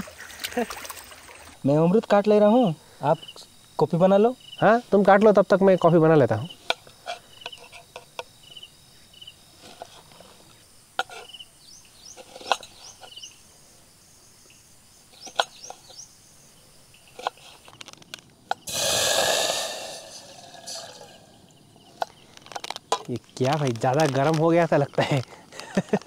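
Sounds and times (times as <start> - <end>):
cooking gear clicks and knocks: 17.2 - 18.4, 22.0 - 26.0
water hissing on hot pot: 18.6 - 23.0.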